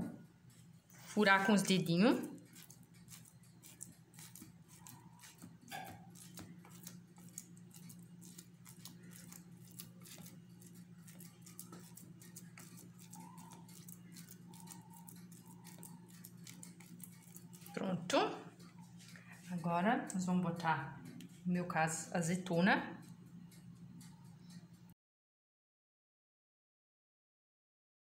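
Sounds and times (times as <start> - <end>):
low steady hum: 0.0 - 25.0
fingertips patting sticky dough: 1.2 - 20.2.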